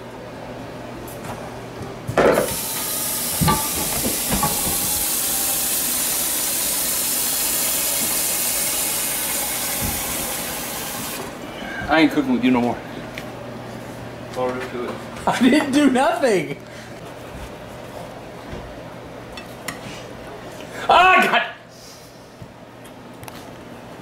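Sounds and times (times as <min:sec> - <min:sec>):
sizzling steam hiss: 0:02.5 - 0:11.3.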